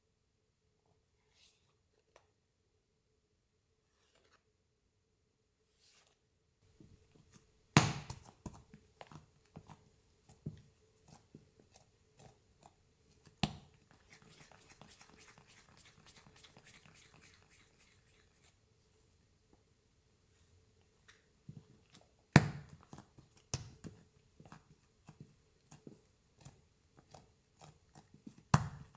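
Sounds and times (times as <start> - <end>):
dough slapping and clicking: 7.2 - 18.2, 21.5 - 28.9.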